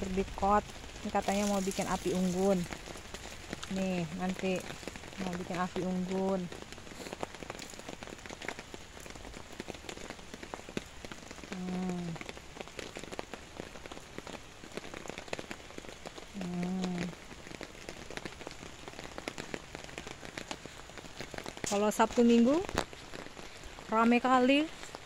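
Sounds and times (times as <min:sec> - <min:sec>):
drizzle pattering on tarp: 0:00.7 - 0:05.6.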